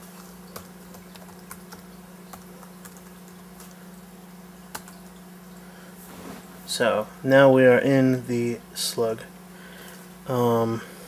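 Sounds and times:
laptop keyboard typing: 0:00.5 - 0:03.8, 0:04.7 - 0:05.0.

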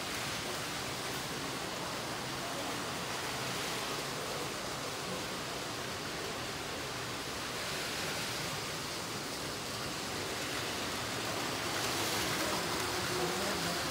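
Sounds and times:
toy trains running on plastic track: 0:03.4 - 0:13.9.

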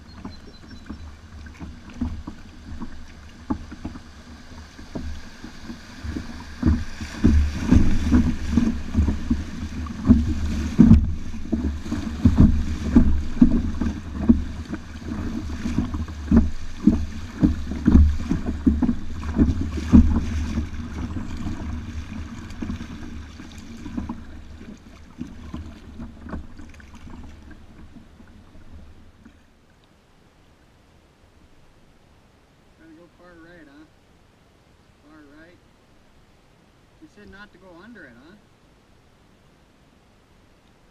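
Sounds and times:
low knocks and thumps: 0:00.0 - 0:29.4
river water splashing against kayak: 0:00.0 - 0:34.9.

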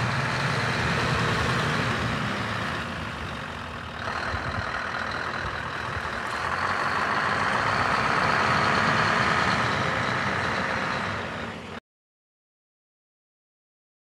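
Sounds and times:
diesel truck engine driving past: 0:00.0 - 0:11.8.

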